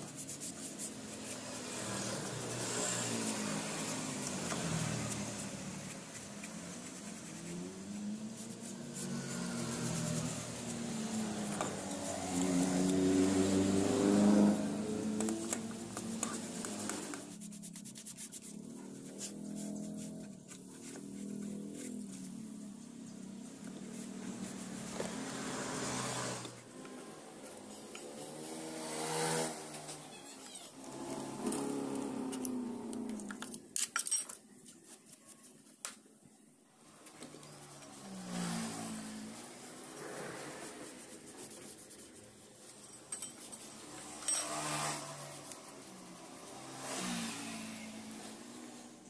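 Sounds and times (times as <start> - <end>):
vehicle engine revving: 7.4 - 17.2, 24.1 - 30.0, 30.8 - 33.4, 43.6 - 49.0.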